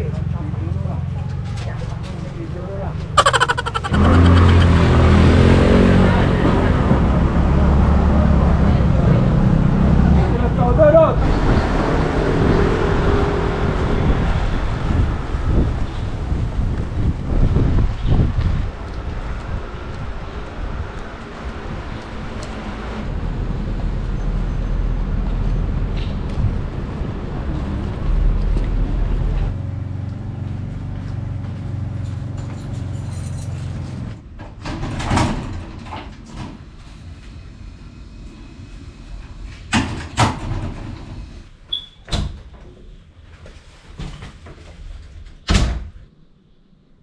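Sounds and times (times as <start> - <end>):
road and wind noise: 0.0 - 47.0.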